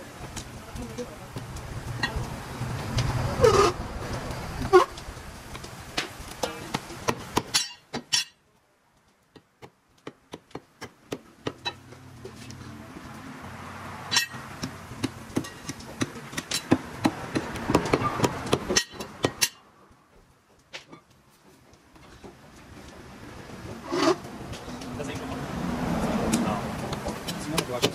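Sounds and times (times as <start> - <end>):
cleaver chopping meat on wood: 6.7 - 7.6, 9.4 - 11.6, 14.6 - 19.4, 26.3 - 27.9.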